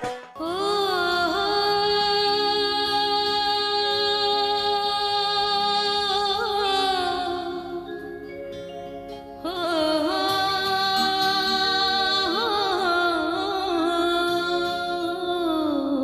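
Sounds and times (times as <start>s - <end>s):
woman singing long note: 9.4s - 16.0s.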